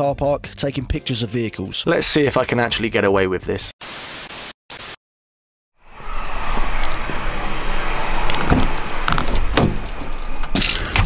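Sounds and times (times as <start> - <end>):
static hiss: 3.8 - 5.0
traffic noise: 5.8 - 11.0
keys jangling: 9.8 - 11.0.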